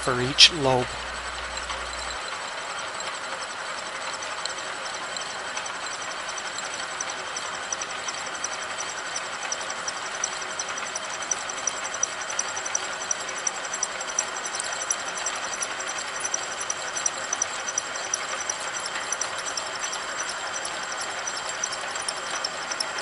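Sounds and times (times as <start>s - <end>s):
thin high whine: 0.0s - 2.4s
milling machine cutting metal: 0.0s - 23.0s
light irregular ticks: 1.0s - 2.4s, 4.0s - 23.0s.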